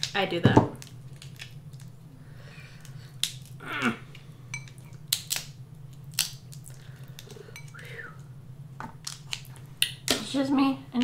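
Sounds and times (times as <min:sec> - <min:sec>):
crab shells cracking: 0:00.0 - 0:02.0, 0:02.7 - 0:07.8, 0:09.0 - 0:10.2.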